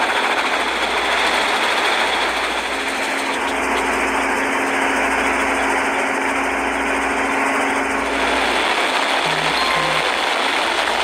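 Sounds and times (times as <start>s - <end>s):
motorboat engine hum: 0.0s - 11.0s
water rushing: 8.2s - 11.0s.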